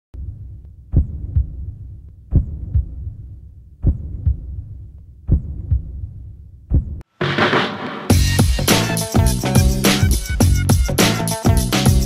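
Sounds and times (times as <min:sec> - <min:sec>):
heartbeat thumps: 0:00.9 - 0:03.2, 0:03.8 - 0:06.1, 0:06.7 - 0:07.0.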